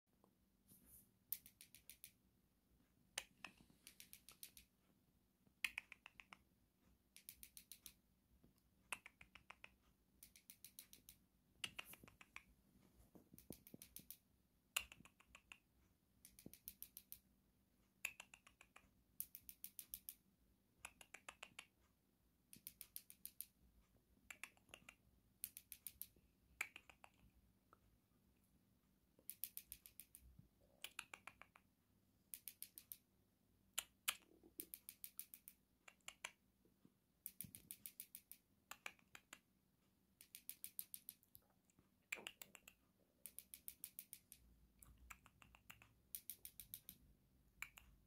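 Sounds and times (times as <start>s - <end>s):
cockatiel rapid clicking: 1.3s - 2.2s, 3.2s - 4.7s, 5.6s - 6.5s, 7.1s - 8.0s, 8.9s - 12.5s, 13.3s - 17.3s, 18.0s - 20.2s, 20.8s - 21.8s, 22.5s - 23.6s, 24.2s - 27.3s, 29.2s - 33.1s, 33.8s - 36.4s, 37.2s - 39.5s, 40.2s - 41.4s, 42.1s - 48.0s.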